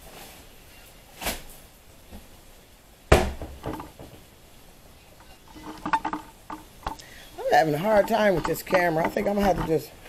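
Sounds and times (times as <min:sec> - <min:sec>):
hard objects knocking: 0:03.2 - 0:04.2, 0:05.2 - 0:10.0.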